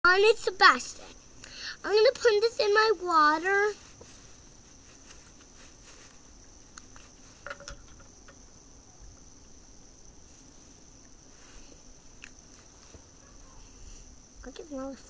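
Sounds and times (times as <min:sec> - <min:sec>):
faint high-pitched hiss: 0:00.1 - 0:15.0
small glass bottle clicks: 0:07.5 - 0:08.4.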